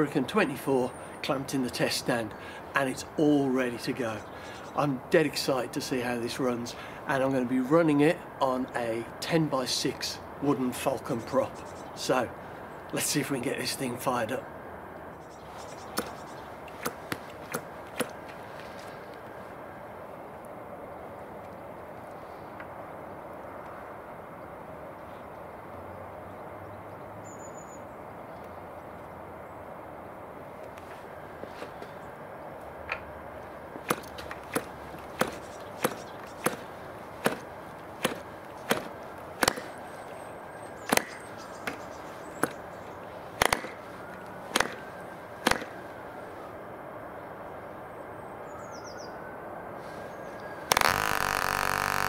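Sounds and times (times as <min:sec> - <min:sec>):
outdoor background hiss: 0:00.0 - 0:52.0
propeller flicked double clack: 0:33.9 - 0:39.8, 0:43.4 - 0:43.8.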